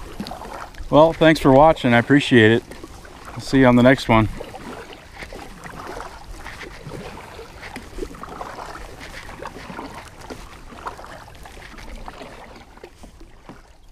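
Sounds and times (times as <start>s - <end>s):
small splashes and knocks: 0.0s - 13.9s
water lapping against kayak hull: 0.0s - 13.9s.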